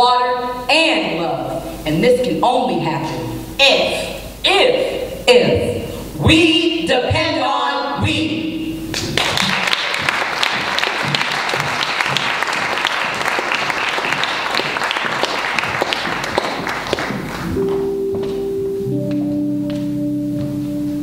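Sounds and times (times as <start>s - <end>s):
audience applauding: 9.0s - 17.6s
held musical notes: 15.6s - 21.0s.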